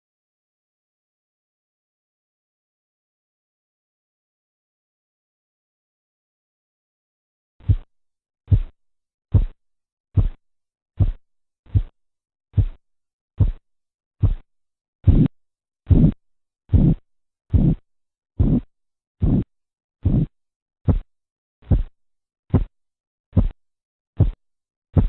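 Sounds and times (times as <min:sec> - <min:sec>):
heartbeat taps through stethoscope: 0:07.6 - 0:07.9, 0:08.5 - 0:09.6, 0:10.2 - 0:10.4, 0:11.0 - 0:12.8, 0:13.4 - 0:13.6, 0:14.2 - 0:15.3, 0:15.9 - 0:17.8, 0:18.4 - 0:23.6, 0:24.2 - 0:24.4.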